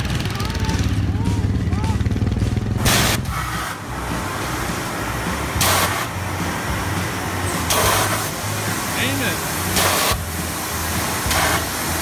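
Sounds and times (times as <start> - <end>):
low blower hum: 0.0 - 12.0
hissing blasts of air: 2.8 - 12.0.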